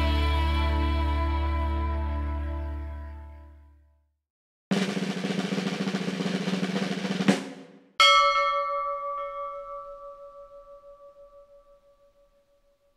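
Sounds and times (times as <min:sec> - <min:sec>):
snare drum roll: 0:04.7 - 0:07.9
bell strike ringing: 0:08.0 - 0:12.4.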